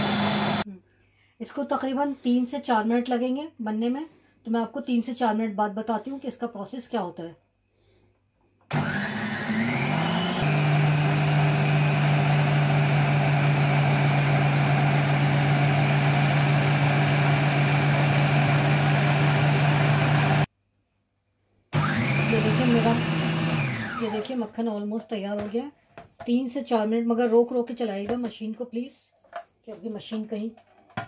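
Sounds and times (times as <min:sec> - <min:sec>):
food processor motor whine: 0:00.0 - 0:00.6, 0:08.7 - 0:20.5, 0:21.8 - 0:24.4.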